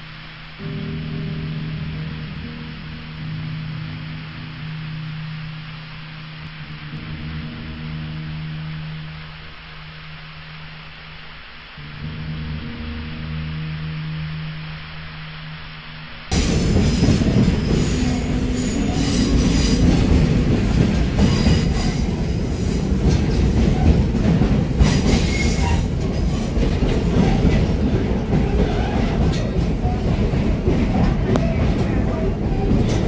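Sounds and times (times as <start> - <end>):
high wheel squeals: 16.3 - 24.2, 24.8 - 33.0
train wheels rumbling on rails: 16.3 - 33.0.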